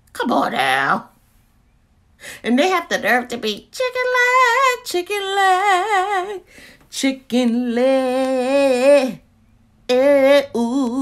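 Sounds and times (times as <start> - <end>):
woman singing with vibrato: 2.4 - 9.3, 9.9 - 11.0.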